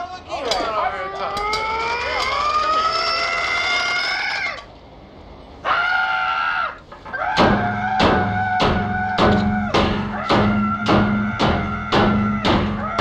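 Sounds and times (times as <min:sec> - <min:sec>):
drawn-out rising cries: 0:00.3 - 0:13.0
music with percussive hits: 0:07.4 - 0:13.0.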